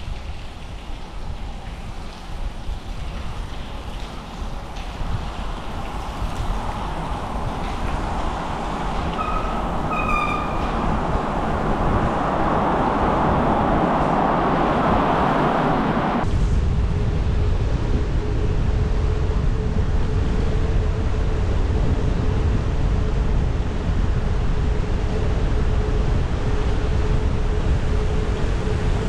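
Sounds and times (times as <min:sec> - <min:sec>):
bicycle tyre noise: 0:00.0 - 0:19.4
wind rushing over microphone: 0:00.0 - 0:29.0
traffic rumble echoing: 0:03.4 - 0:19.7
short high squeaks: 0:09.1 - 0:10.9.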